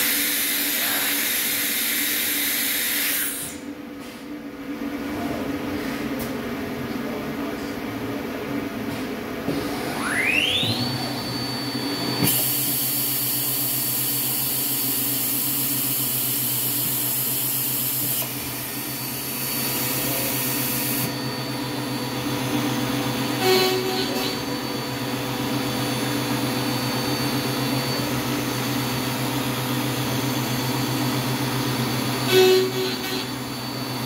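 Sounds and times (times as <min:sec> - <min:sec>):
machine hum: 0:03.6 - 0:34.0
spindle whine: 0:09.5 - 0:34.0.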